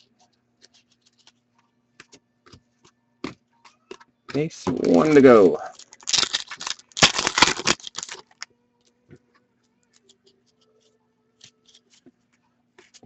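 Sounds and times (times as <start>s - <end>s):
cards clicking and sliding: 0.6s - 1.4s
foil wrapper tearing and crinkling: 4.9s - 8.4s.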